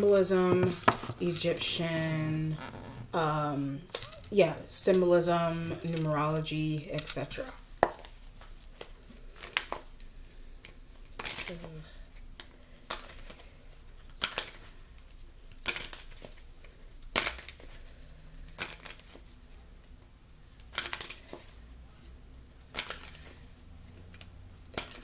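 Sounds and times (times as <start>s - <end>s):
cards riffle shuffling: 7.0s - 17.8s, 18.4s - 19.4s, 20.5s - 21.7s, 22.5s - 25.0s.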